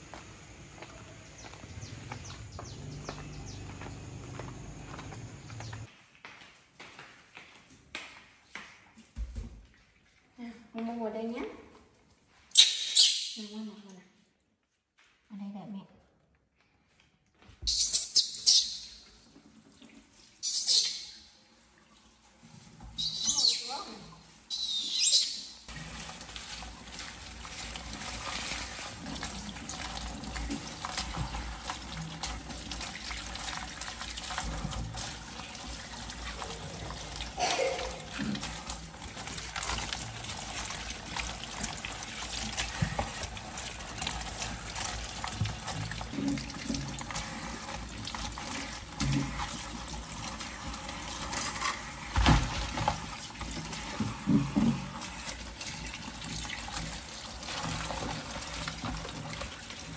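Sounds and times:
short high squeak: 17.7s - 18.9s
tap water running into sink: 25.7s - 59.9s.

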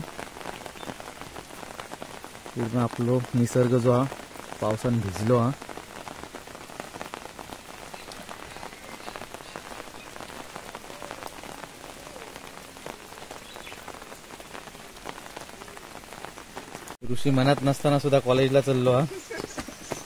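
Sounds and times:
rain on foliage: 0.0s - 20.0s.

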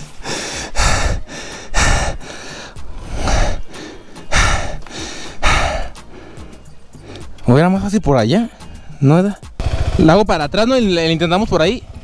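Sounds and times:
person breathing heavily: 0.0s - 7.4s.

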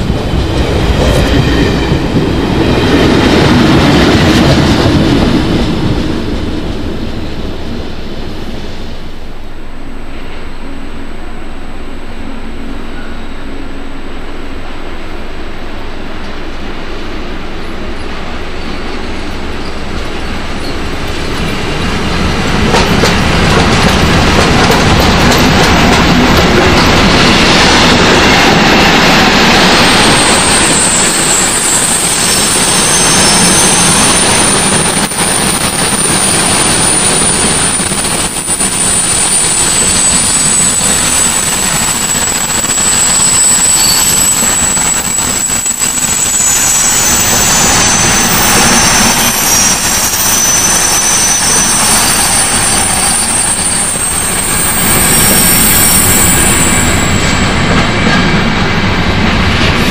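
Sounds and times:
freight train rumbling past: 0.0s - 59.9s
train wheel clacks: 19.2s - 59.9s
high thin wheel squeal: 29.6s - 57.7s.

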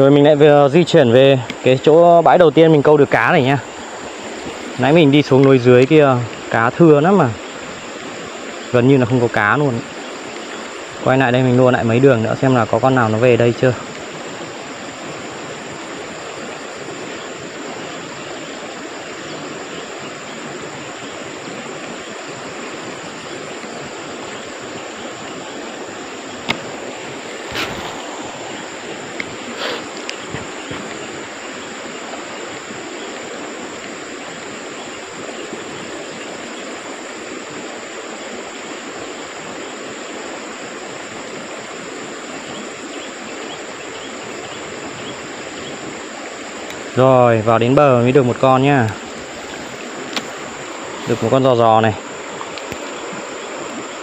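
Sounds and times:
flowing stream water: 0.0s - 54.0s
high insect drone: 0.0s - 54.0s.

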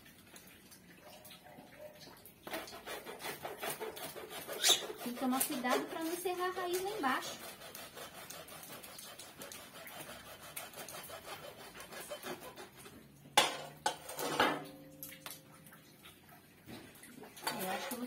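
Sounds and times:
hacksaw cutting plastic: 2.5s - 13.0s.

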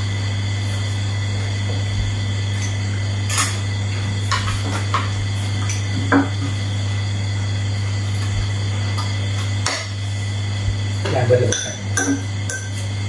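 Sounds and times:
steady low hum: 0.0s - 13.0s
spoons clinking on ceramic plates: 11.5s - 12.8s.

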